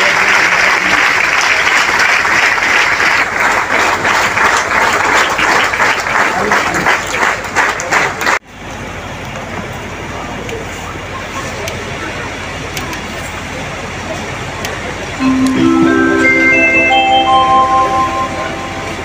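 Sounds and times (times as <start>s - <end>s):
audience applauding: 0.0s - 8.4s
steady background noise: 0.1s - 19.0s.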